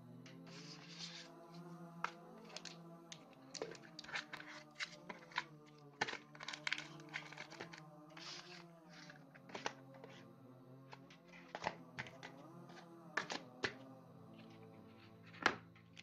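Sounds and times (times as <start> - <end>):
clicks and taps of packaging: 2.0 - 8.3, 9.4 - 10.1, 10.9 - 12.4, 13.2 - 13.8.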